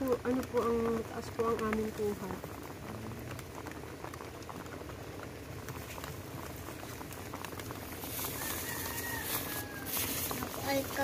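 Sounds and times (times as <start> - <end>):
light rain falling: 0.0 - 11.0
plastic bag rustling: 4.8 - 11.0.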